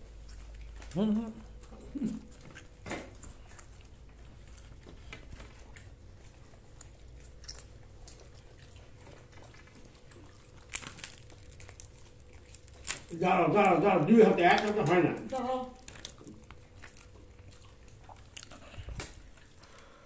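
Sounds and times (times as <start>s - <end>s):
soft mouth clicks and smacks: 0.0s - 11.0s, 15.8s - 19.9s
person chewing food: 0.0s - 20.0s.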